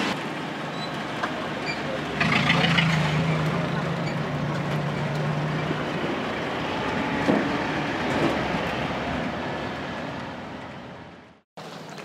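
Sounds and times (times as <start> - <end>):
road and wind noise: 0.0 - 12.0.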